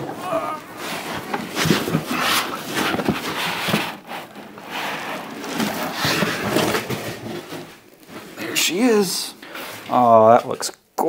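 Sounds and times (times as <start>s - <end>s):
foam blocks rubbing: 0.0s - 9.9s
cardboard scraping and rustling: 0.1s - 8.8s.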